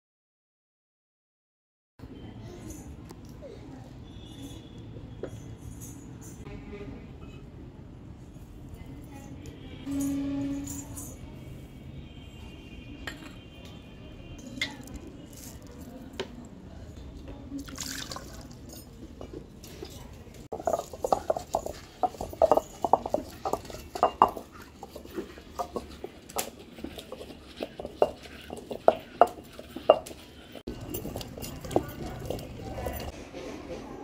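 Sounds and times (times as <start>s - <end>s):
stone grinder knocking and crunching: 20.5s - 33.1s.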